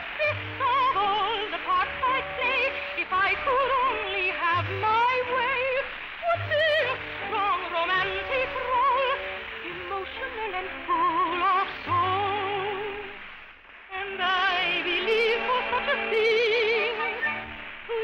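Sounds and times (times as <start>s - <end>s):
operatic soprano singing: 0.0s - 13.2s, 13.9s - 18.0s.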